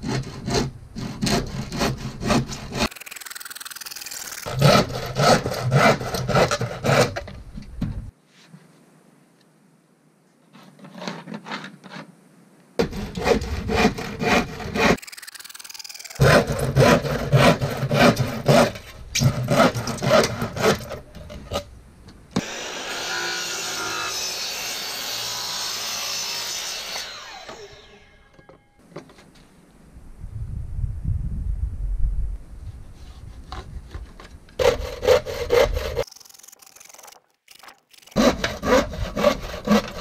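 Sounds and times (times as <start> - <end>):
hand saw cutting plywood: 0.0 - 7.4, 12.8 - 21.6, 33.1 - 40.0.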